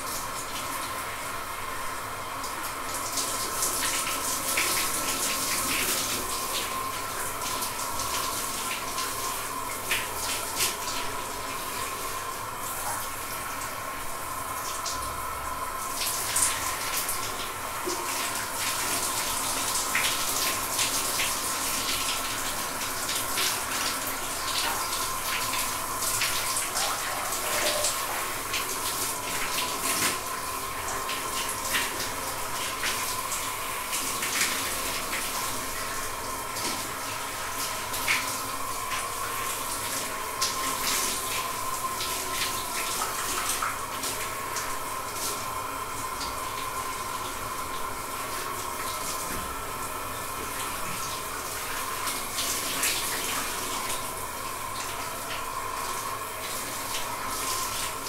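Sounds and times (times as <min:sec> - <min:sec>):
shower water spraying: 0:15.8 - 0:58.0.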